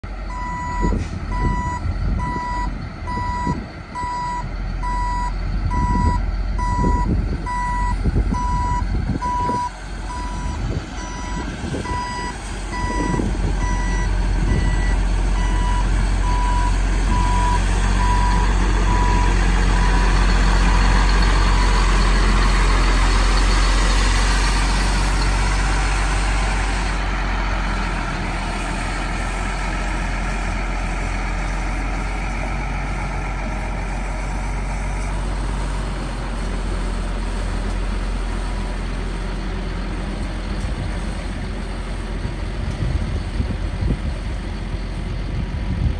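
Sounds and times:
diesel engine running: 0.0s - 45.9s
backup alarm beeps: 0.3s - 20.0s.

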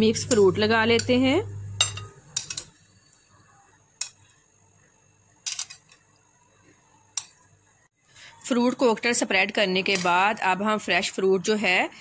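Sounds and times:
metal spoon clinking on glass bowl: 0.2s - 2.9s
faint room noise: 1.5s - 12.0s.

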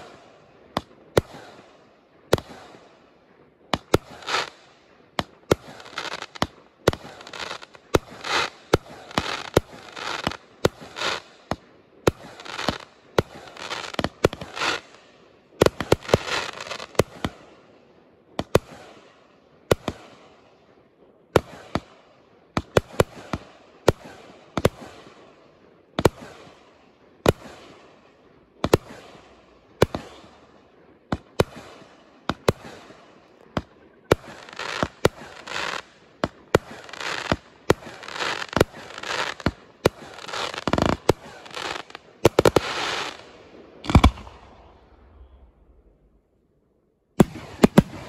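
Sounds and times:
firework crackling: 3.7s - 17.4s, 31.1s - 46.1s, 47.2s - 48.0s
firework shells bursting: 33.6s - 44.5s.

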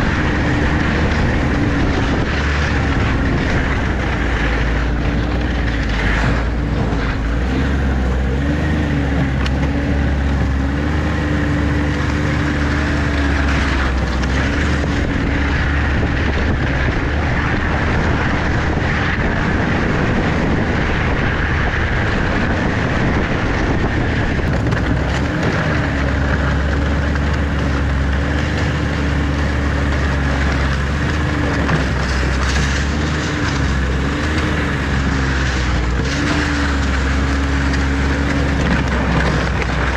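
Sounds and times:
vehicle engine droning: 0.0s - 39.9s.

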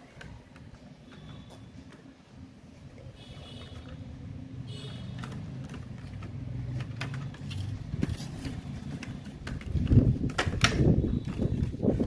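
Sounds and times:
plastic packaging clicks and taps: 5.1s - 11.8s
plastic knocks: 5.2s - 11.7s.

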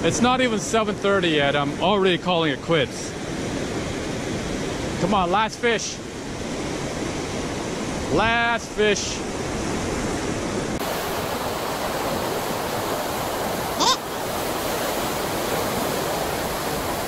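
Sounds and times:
surf breaking on beach: 6.6s - 17.0s
short rising cry: 13.8s - 14.0s.

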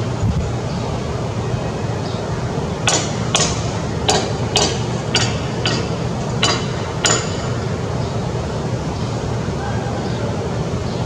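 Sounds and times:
sharp knocks: 2.8s - 7.7s.

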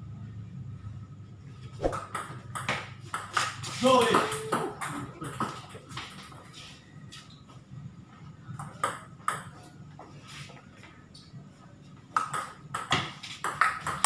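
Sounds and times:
table tennis ball bouncing: 1.8s - 6.3s, 8.6s - 9.6s, 12.2s - 14.0s.

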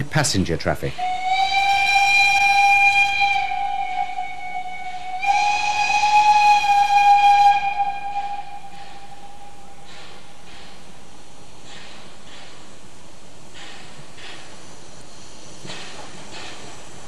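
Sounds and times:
steam locomotive whistle blast: 0.9s - 10.5s.

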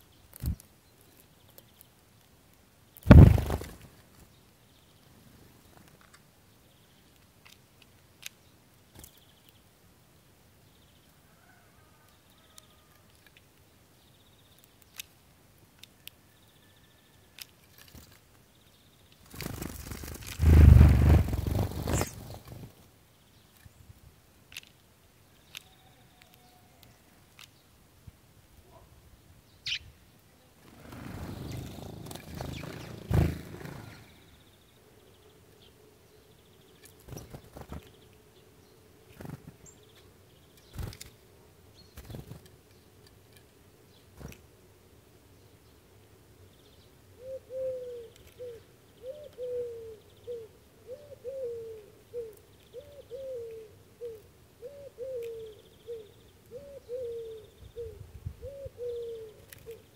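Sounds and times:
faint bird chirps: 10.6s - 13.1s, 16.0s - 17.5s, 25.3s - 27.8s, 29.5s - 42.9s, 46.4s - 59.9s
wind rumbling on microphone: 20.4s - 22.6s.

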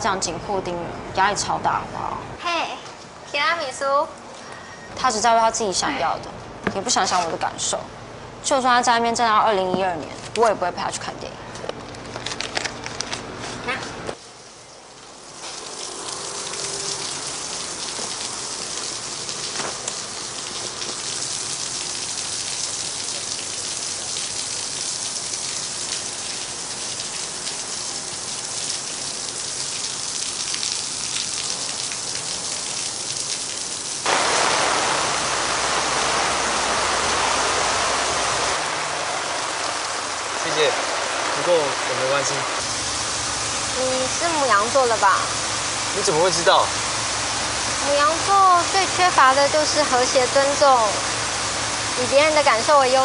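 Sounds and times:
heavy rain falling: 15.0s - 53.0s.

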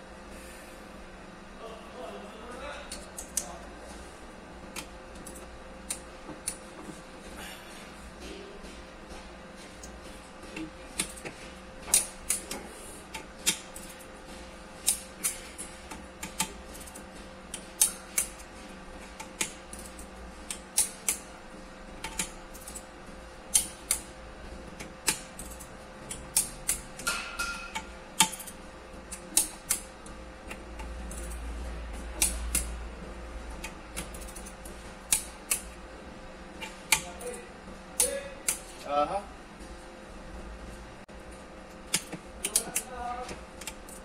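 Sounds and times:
faint steady hum: 0.0s - 44.0s
hand tool clicking on metal: 35.1s - 35.7s, 38.0s - 38.7s, 41.9s - 42.9s.

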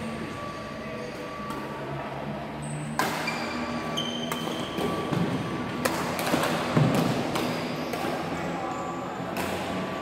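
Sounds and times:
sneakers squeaking on wooden court: 2.6s - 5.6s, 6.8s - 9.0s
rackets striking shuttlecock: 2.9s - 8.4s, 9.2s - 9.9s.

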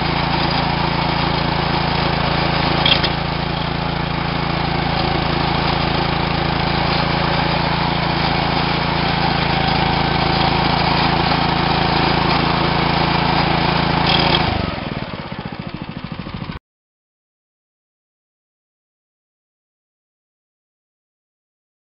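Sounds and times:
small gas engine running: 0.0s - 16.6s.

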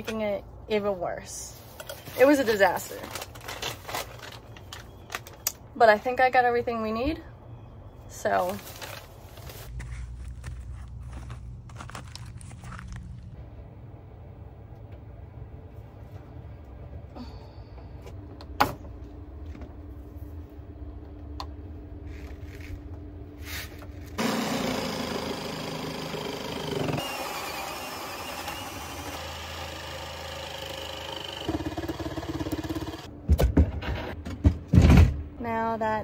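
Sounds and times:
cordless drill boring through wood: 24.2s - 33.1s.

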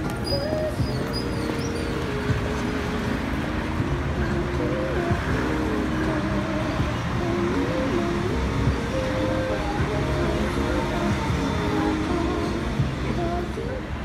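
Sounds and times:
steady traffic noise: 0.0s - 14.0s.

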